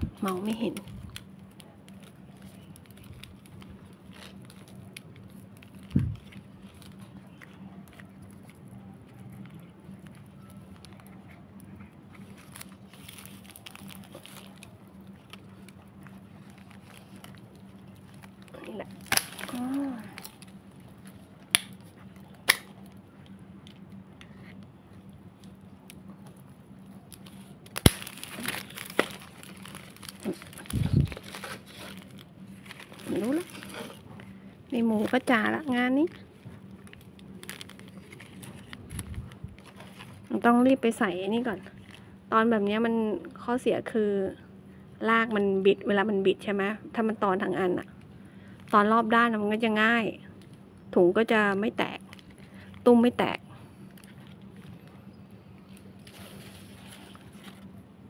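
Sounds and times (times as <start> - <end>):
plastic bag crinkling: 0.1 - 23.9, 25.3 - 42.1, 51.8 - 55.0, 55.6 - 57.8
plastic sharp snaps: 21.5 - 22.8.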